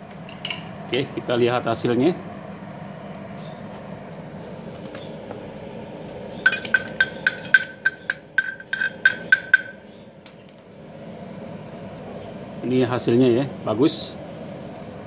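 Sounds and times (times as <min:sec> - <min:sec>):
hammer tapping metal: 0:06.5 - 0:10.8.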